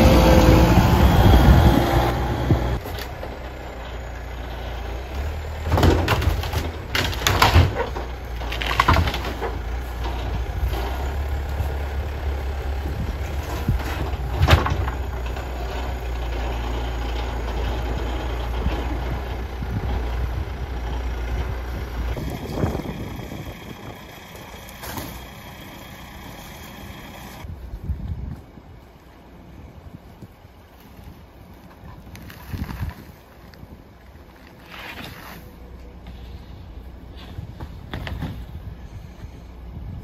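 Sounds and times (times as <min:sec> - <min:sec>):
diesel engine running: 0:00.0 - 0:27.7, 0:35.4 - 0:40.0
crashes and knocks of debris: 0:05.1 - 0:11.7, 0:13.2 - 0:19.1.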